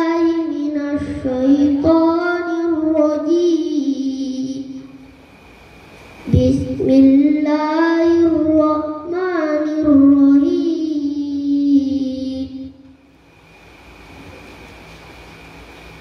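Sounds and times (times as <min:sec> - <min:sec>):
boy chanting through a microphone: 0:00.0 - 0:05.1, 0:06.2 - 0:13.0.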